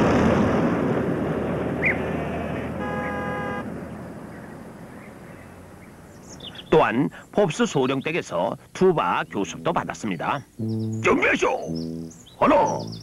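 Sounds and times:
van engine driving away: 0:00.0 - 0:06.7.

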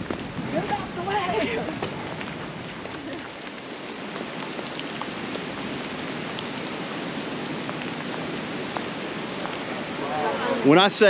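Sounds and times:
steady rain falling: 0:00.0 - 0:11.0.

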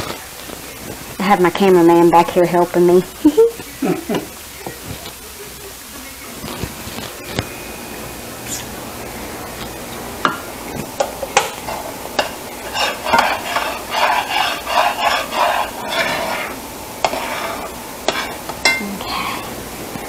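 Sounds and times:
spatula scraping skillet: 0:10.8 - 0:19.6.

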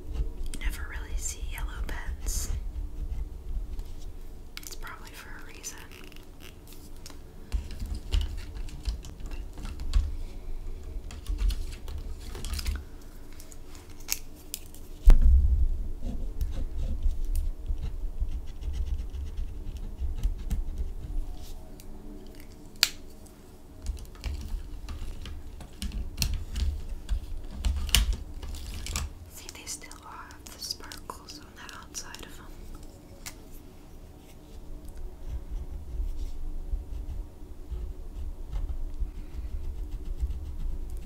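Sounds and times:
pen scratching on paper: 0:17.8 - 0:21.1, 0:36.2 - 0:41.0
hand rubbing paper on desk: 0:35.2 - 0:41.0.

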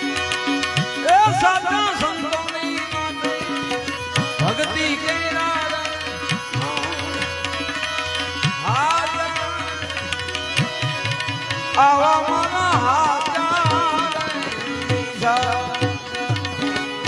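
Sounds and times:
harmonium chords: 0:00.0 - 0:17.0
tabla rhythm: 0:00.0 - 0:17.0.

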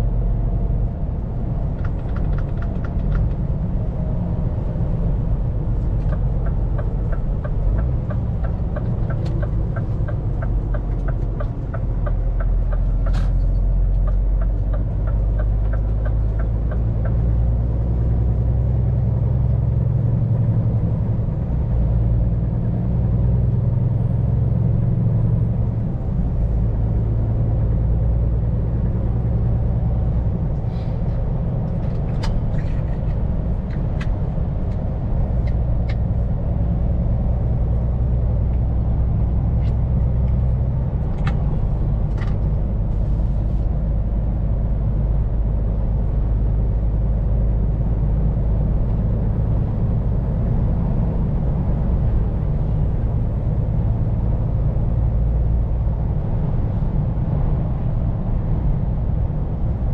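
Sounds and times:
truck diesel engine running: 0:00.0 - 0:22.1.

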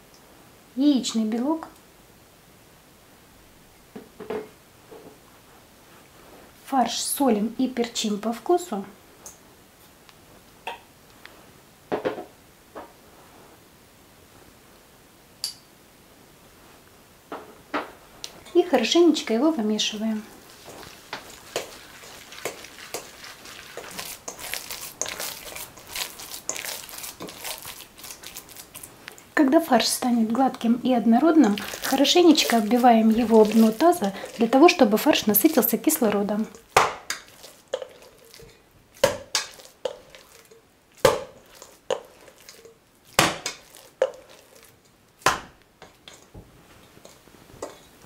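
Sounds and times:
mince mixing in steel bowl: 0:18.2 - 0:48.0
mince slapped into metal bowl: 0:36.8 - 0:37.2, 0:45.2 - 0:45.6.

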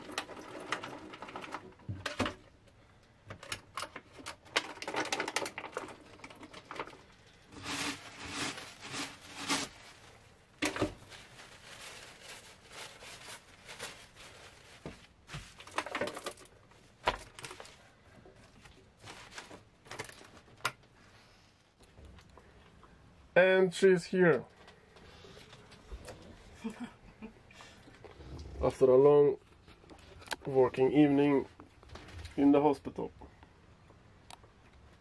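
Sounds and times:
paper and plastic crinkling: 0:03.4 - 0:20.8.

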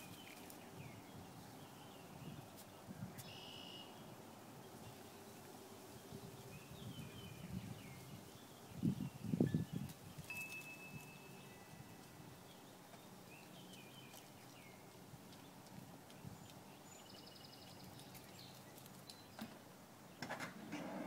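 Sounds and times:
rustling and scuffing: 0:00.0 - 0:01.0, 0:02.4 - 0:03.4, 0:09.7 - 0:12.3
faint bird chirps: 0:03.2 - 0:04.1.

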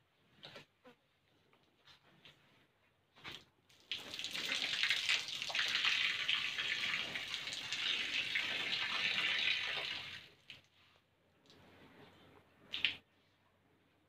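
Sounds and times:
cow urinating onto paving: 0:03.7 - 0:10.7.

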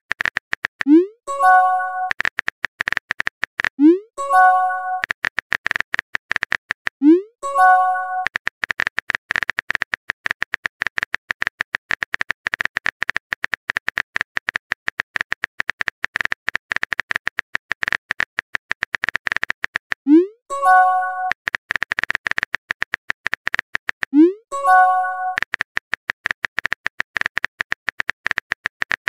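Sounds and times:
phone keyboard clicks: 0:07.6 - 0:20.0, 0:24.7 - 0:29.0.

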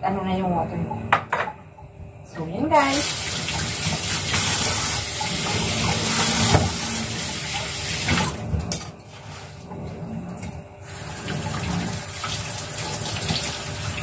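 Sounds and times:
faucet running into sink: 0:02.9 - 0:08.4, 0:10.9 - 0:14.0.

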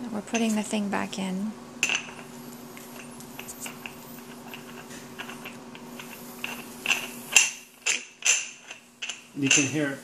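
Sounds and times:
threads clicking and scraping: 0:01.8 - 0:09.8.

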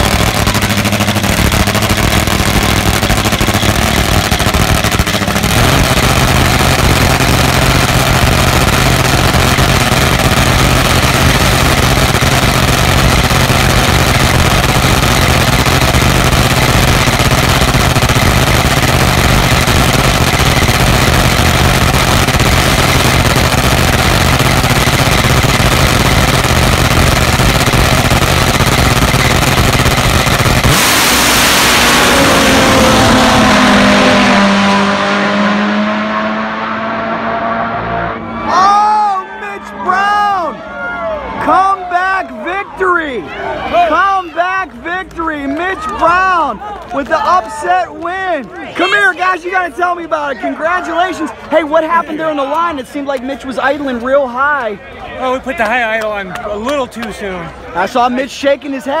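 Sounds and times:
drag bike engine idling: 0:00.0 - 0:34.8.

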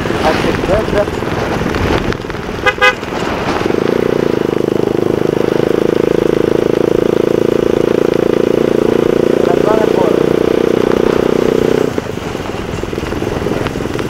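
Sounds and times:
wind noise: 0:00.0 - 0:04.8, 0:10.8 - 0:14.0
motorcycle engine running: 0:00.0 - 0:14.0
horn honks: 0:02.6 - 0:03.2.

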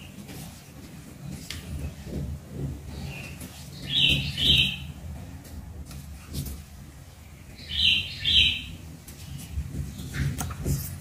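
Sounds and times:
bird chirping: 0:02.9 - 0:05.0, 0:07.2 - 0:10.4.

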